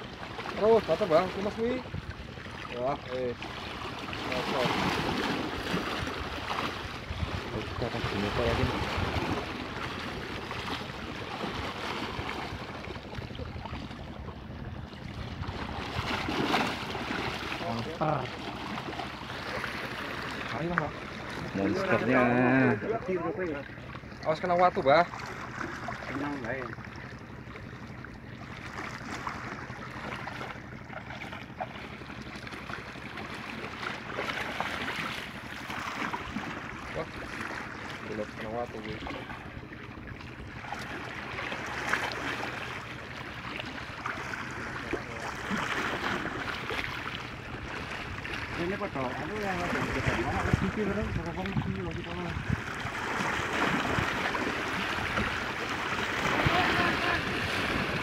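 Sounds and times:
water splashing around boat: 0:00.0 - 0:58.0
wind buffeting microphone: 0:06.1 - 0:10.2, 0:49.4 - 0:53.0.

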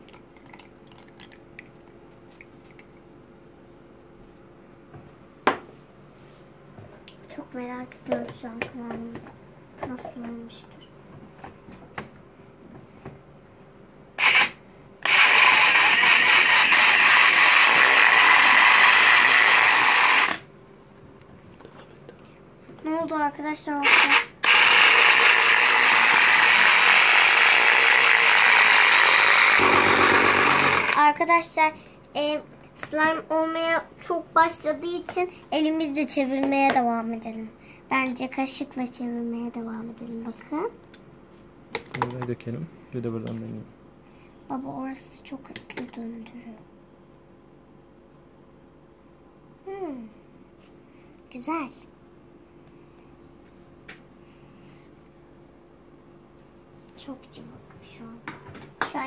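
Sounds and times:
water trickling: 0:00.0 - 0:03.0
faint steady hum: 0:00.0 - 0:59.0
toy food processor motor running: 0:14.2 - 0:20.4, 0:23.8 - 0:31.0.

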